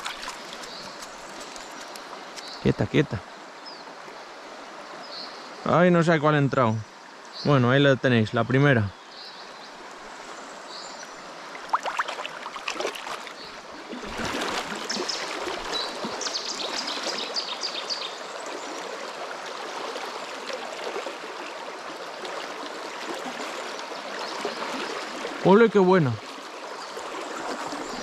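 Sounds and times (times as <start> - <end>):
water splashing: 0.0 - 2.6, 11.4 - 17.4, 26.2 - 28.0
river running over stones: 0.0 - 5.0, 8.2 - 28.0.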